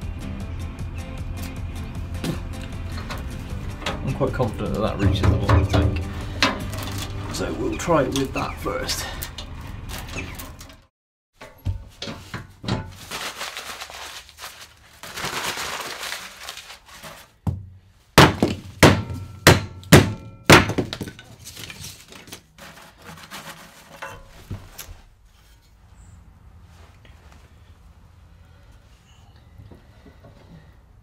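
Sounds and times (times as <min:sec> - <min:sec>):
wooden sticks knocking and clattering: 0:02.2 - 0:07.4, 0:18.2 - 0:24.8.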